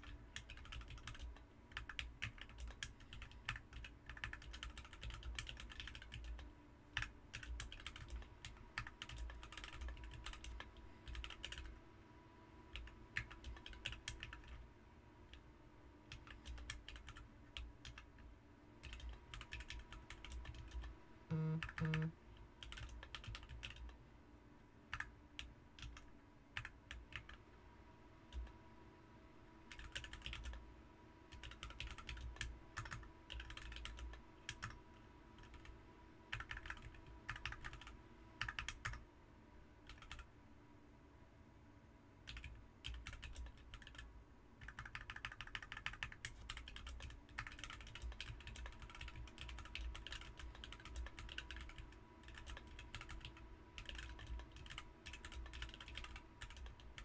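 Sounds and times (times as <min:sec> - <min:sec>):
mechanical keyboard typing: 0:00.0 - 0:11.7, 0:12.7 - 0:14.6, 0:16.1 - 0:18.2, 0:18.8 - 0:24.0, 0:25.8 - 0:27.4, 0:29.7 - 0:30.6, 0:31.3 - 0:34.8, 0:35.4 - 0:35.7, 0:36.3 - 0:39.0, 0:39.9 - 0:40.3, 0:42.3 - 0:57.0.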